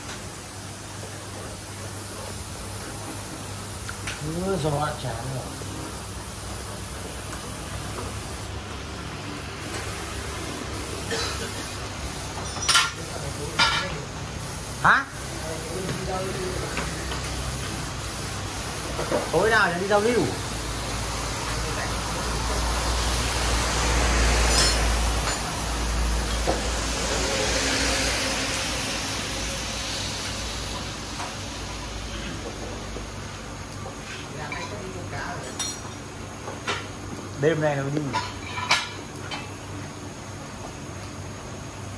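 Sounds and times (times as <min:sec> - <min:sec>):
heavy rain hiss: 0:00.0 - 0:35.4
road traffic: 0:03.0 - 0:41.7
traffic on wet road: 0:22.0 - 0:32.1.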